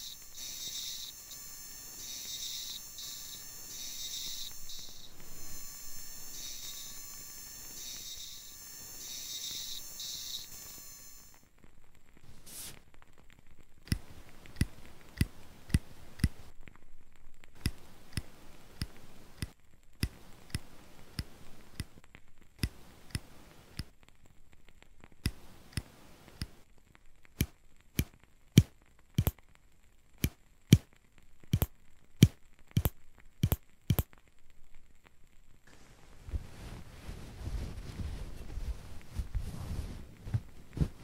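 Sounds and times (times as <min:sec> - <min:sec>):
nail nippers clicking: 0:31.6 - 0:34.1.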